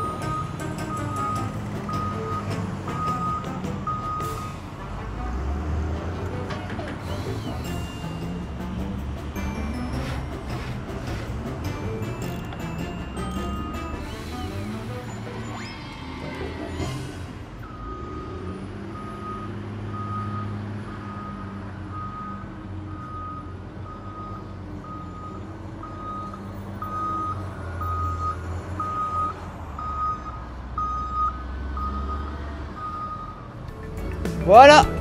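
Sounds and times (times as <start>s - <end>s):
reversing alarm beeping: 0.0s - 4.7s, 11.9s - 16.9s, 17.6s - 33.5s
road roller engine running: 0.0s - 35.0s.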